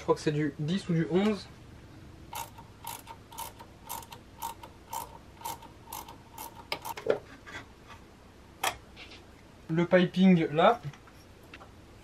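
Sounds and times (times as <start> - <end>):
ratchet wrench clicking: 2.3 - 7.0.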